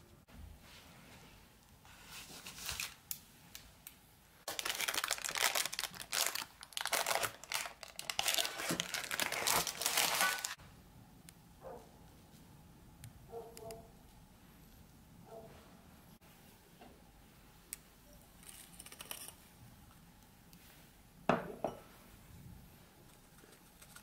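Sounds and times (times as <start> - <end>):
baking paper crinkling and tearing: 1.9 - 3.1, 4.5 - 10.6.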